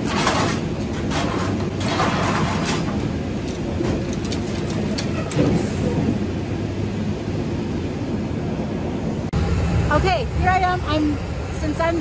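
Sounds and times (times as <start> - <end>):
knocks and clatters: 0.0 - 5.7
baggage conveyor rumble: 0.0 - 12.0.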